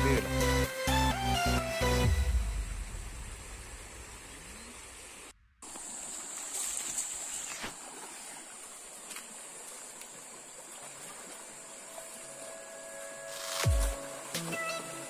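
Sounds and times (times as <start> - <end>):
stream water rushing: 3.4 - 15.0.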